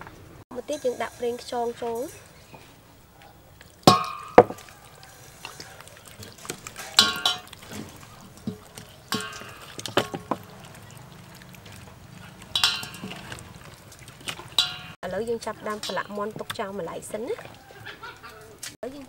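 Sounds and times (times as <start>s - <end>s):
wet squelching of hands on chicken: 2.2s - 15.0s.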